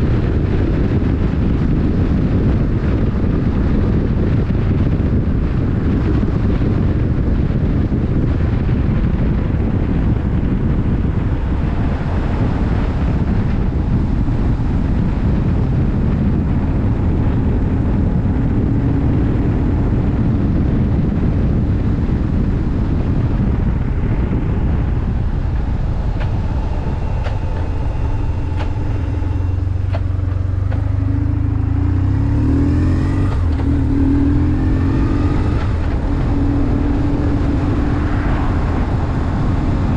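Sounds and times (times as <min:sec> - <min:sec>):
heavy rushing noise: 0:00.0 - 0:39.9
motorcycle engine running: 0:00.0 - 0:39.9.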